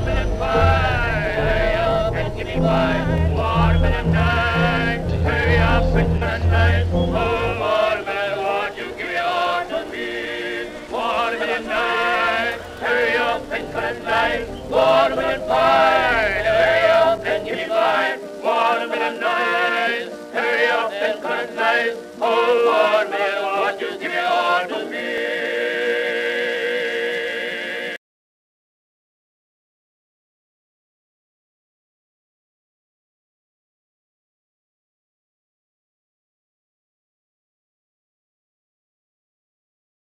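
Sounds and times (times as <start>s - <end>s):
low bass part: 0.0s - 7.9s
male voices singing: 0.0s - 28.0s.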